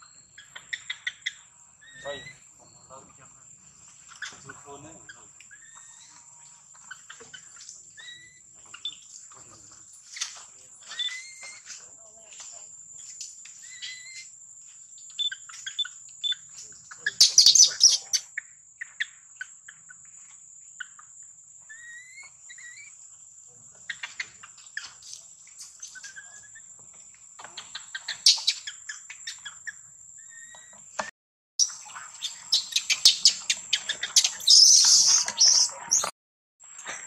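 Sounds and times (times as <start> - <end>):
high-pitched insect whine: 0.0 - 18.2, 21.6 - 23.3, 31.6 - 36.1
birds chirping: 0.0 - 36.9.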